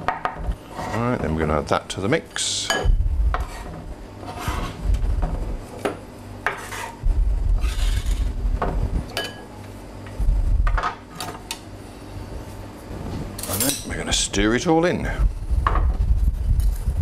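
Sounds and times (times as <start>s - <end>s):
knife scraping chopping board: 0.6s - 1.2s, 3.4s - 4.8s, 6.4s - 7.0s, 7.6s - 8.3s.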